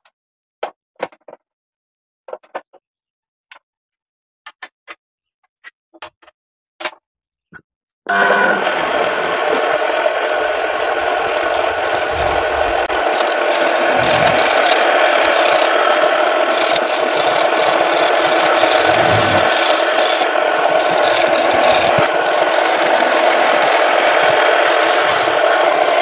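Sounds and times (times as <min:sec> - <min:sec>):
chisel scraping spinning wood: 0:08.2 - 0:26.0.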